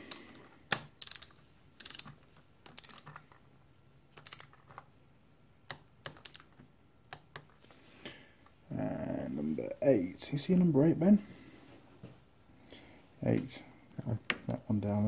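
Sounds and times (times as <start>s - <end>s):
socket wrench ratchet clicking: 0.1s - 3.2s, 4.2s - 4.6s, 6.1s - 6.5s.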